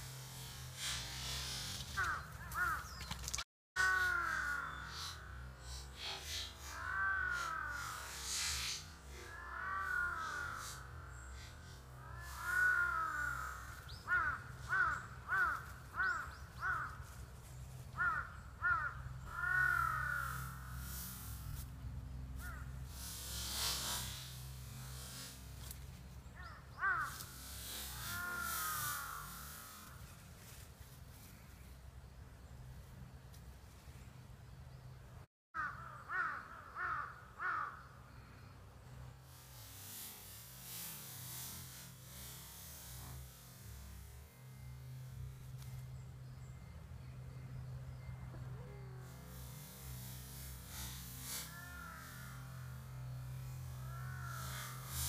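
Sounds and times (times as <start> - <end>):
crow cawing: 2.0 - 3.0, 3.8 - 5.4, 6.7 - 8.3, 9.1 - 11.3, 12.0 - 17.1, 18.0 - 20.9, 22.4 - 22.8, 26.4 - 30.0, 35.6 - 38.3, 51.4 - 55.0.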